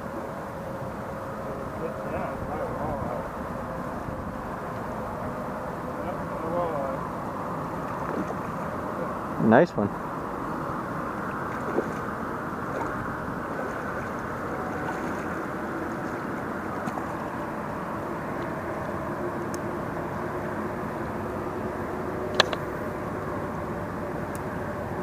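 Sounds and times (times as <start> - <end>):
road traffic rumble: 0.0 - 25.0
sharp click: 22.3 - 22.6.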